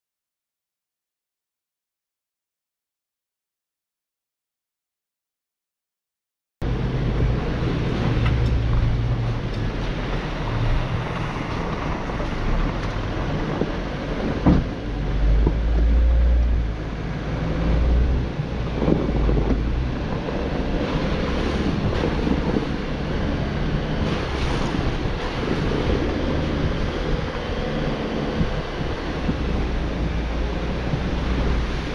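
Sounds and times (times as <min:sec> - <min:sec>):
engine and tyres rumbling: 0:06.6 - 0:31.9
wind buffeting microphone: 0:06.6 - 0:31.9.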